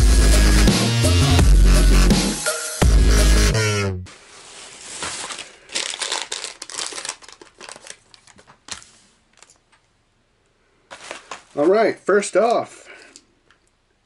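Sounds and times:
electronic music: 0:00.0 - 0:04.1
plastic bag crinkling: 0:04.2 - 0:09.8, 0:10.9 - 0:11.8.

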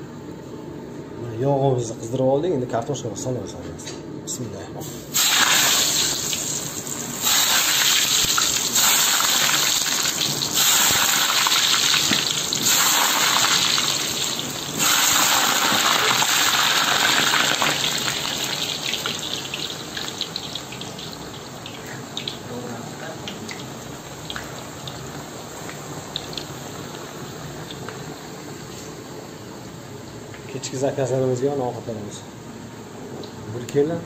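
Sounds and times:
potatoes sizzling in hot oil: 0:05.1 - 0:22.6.

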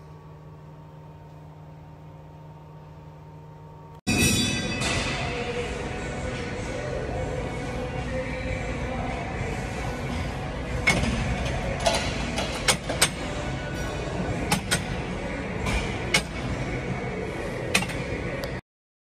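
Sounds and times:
gym background noise: 0:04.1 - 0:18.6
music playing: 0:04.1 - 0:18.6.

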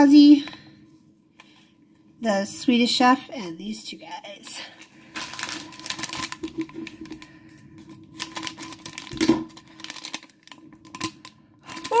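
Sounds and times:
plastic bag crinkling: 0:04.9 - 0:12.0.

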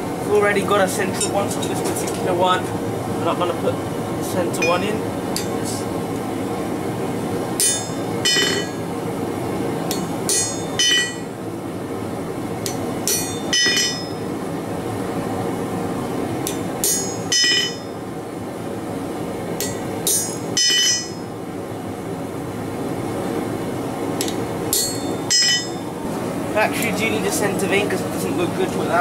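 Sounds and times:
steady background noise: 0:00.0 - 0:29.0
hammer striking chisel on metal: 0:07.6 - 0:08.8, 0:09.9 - 0:11.3, 0:12.6 - 0:14.2, 0:16.5 - 0:17.9, 0:19.6 - 0:21.2, 0:24.2 - 0:25.8.

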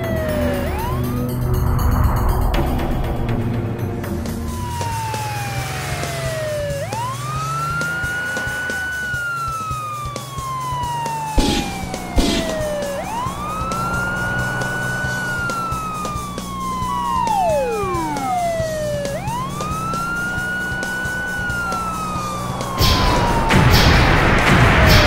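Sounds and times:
police siren wailing: 0:00.0 - 0:02.9, 0:04.0 - 0:25.0
steady low drone: 0:00.0 - 0:07.6, 0:11.3 - 0:25.0
falling whistle: 0:06.4 - 0:09.9, 0:11.3 - 0:25.0
sharp knocks: 0:11.4 - 0:12.8.

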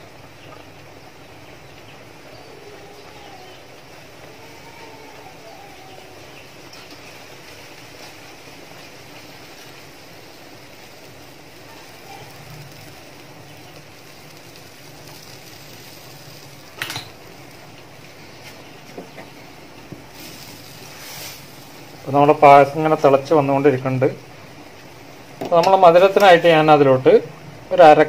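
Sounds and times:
milk bubbling in a pan: 0:00.0 - 0:25.4.

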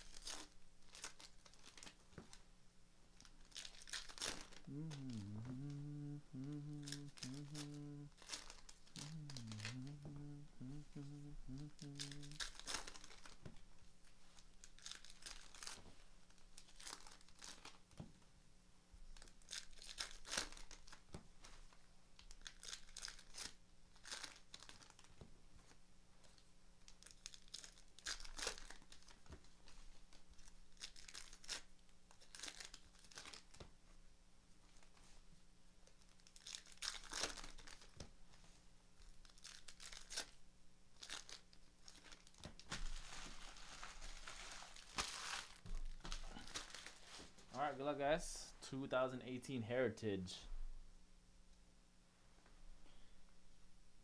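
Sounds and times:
wrappers rustling and tearing: 0:00.0 - 0:02.4, 0:03.2 - 0:18.0, 0:19.1 - 0:33.7, 0:35.8 - 0:38.1, 0:39.0 - 0:47.8.

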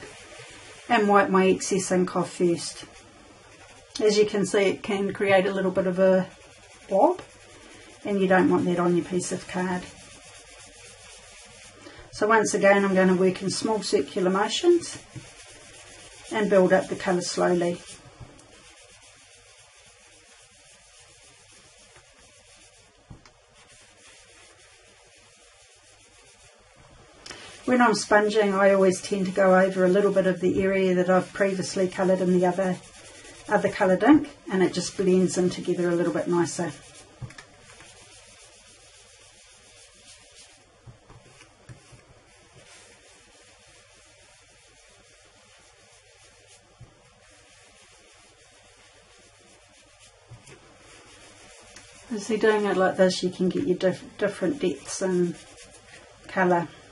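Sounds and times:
sponge rubbing on cardstock: 0:00.0 - 0:56.9
sponge scuffing on card: 0:36.3 - 0:43.7.

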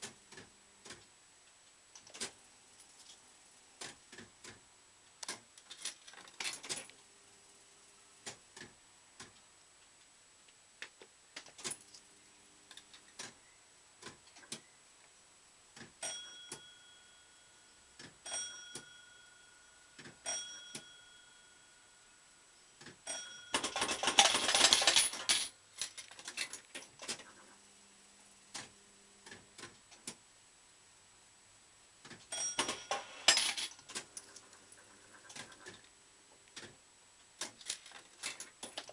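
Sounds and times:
mechanism clicks: 0:01.9 - 0:02.4, 0:05.2 - 0:07.0.

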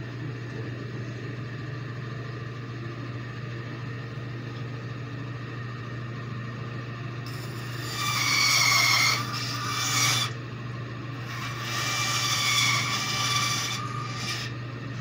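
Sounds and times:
steady machine hum: 0:00.0 - 0:15.0
bandsaw cutting wood: 0:07.3 - 0:10.4, 0:11.2 - 0:14.5.

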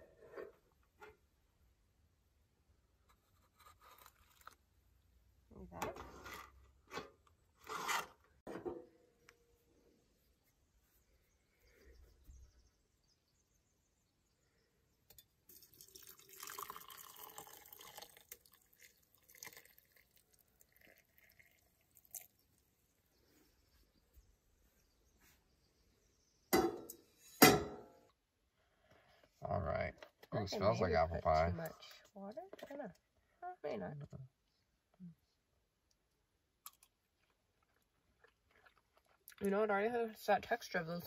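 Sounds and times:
hot water pouring into a cup: 0:15.5 - 0:22.5
metal pot clanking on stove grate: 0:26.6 - 0:27.9.

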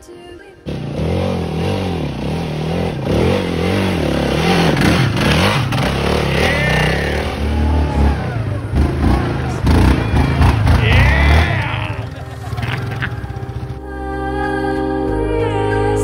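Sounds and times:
dirt bike engine revving: 0:00.6 - 0:13.8
quad bike engine: 0:00.6 - 0:13.9.

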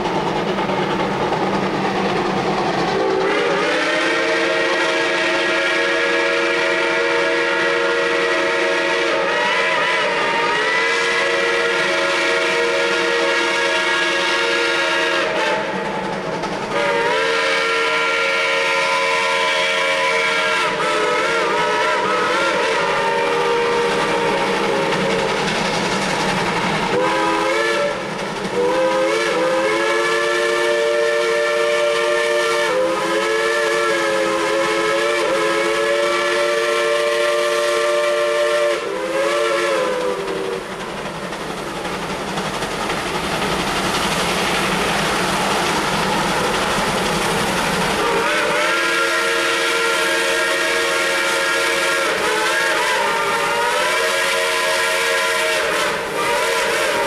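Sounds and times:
steam exhaust rushing: 0:00.0 - 0:57.0
steam whistle blasts: 0:03.0 - 0:15.8, 0:16.7 - 0:25.2, 0:26.9 - 0:40.7, 0:48.0 - 0:57.0.

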